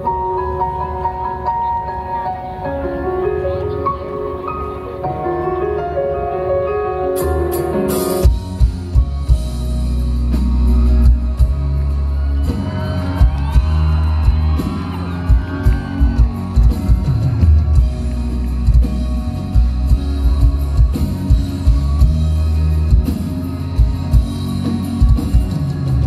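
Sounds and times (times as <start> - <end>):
rock band through pa: 0.0 - 26.0
heavy bass and drums: 8.2 - 26.0.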